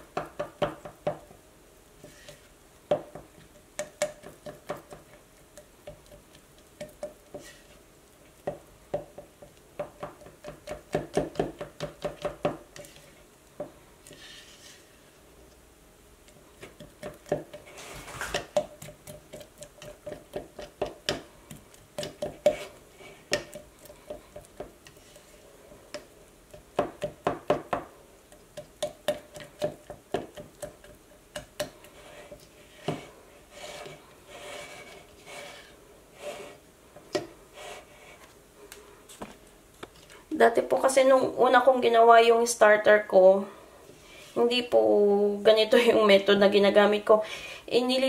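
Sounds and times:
spatula scraping container sides: 14.1 - 15.0, 31.8 - 36.6.

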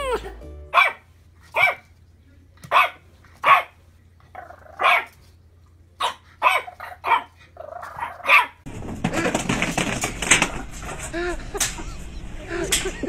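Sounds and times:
puppy yipping: 0.7 - 1.0, 1.6 - 1.8, 6.0 - 8.6
jumble of noise with clatter: 8.7 - 13.0.

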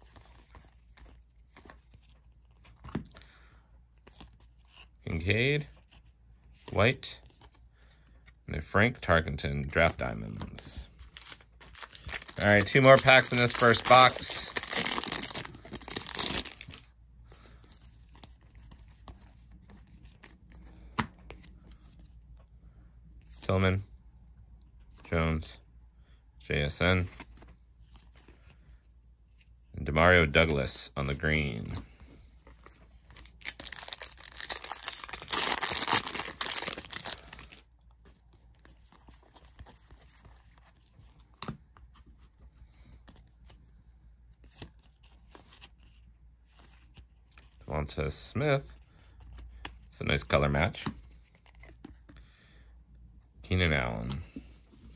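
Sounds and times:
cards being handled: 0.0 - 8.4, 9.6 - 22.2, 26.7 - 43.7, 44.3 - 47.7, 48.8 - 52.2, 53.6 - 54.9
foil wrapper tearing and crinkling: 11.1 - 16.8, 33.2 - 37.6.

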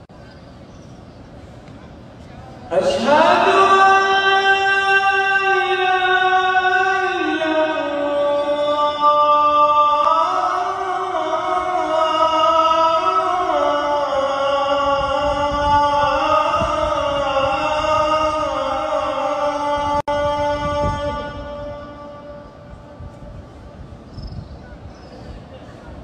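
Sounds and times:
man chanting long notes: 2.7 - 23.3.

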